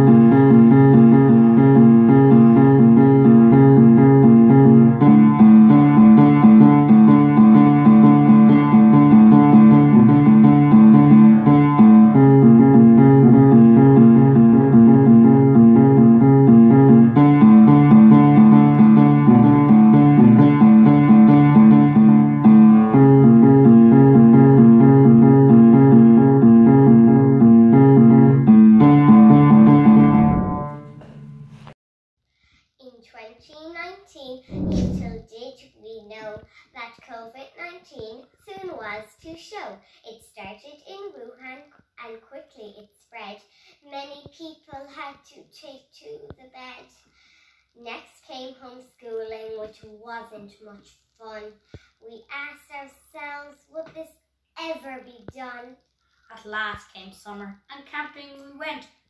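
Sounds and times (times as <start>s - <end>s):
piano playing repeated chords: 0.0s - 31.5s.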